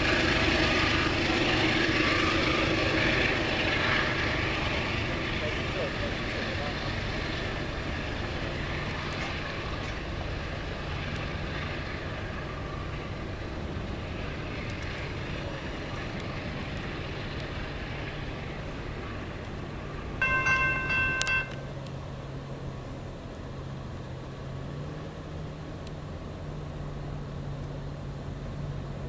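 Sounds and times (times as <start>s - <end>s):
train wheels rumbling on rail: 0.0s - 22.2s.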